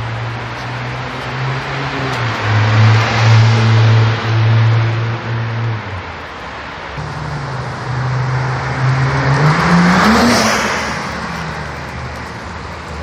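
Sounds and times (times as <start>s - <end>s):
car accelerating past: 7.0s - 12.4s.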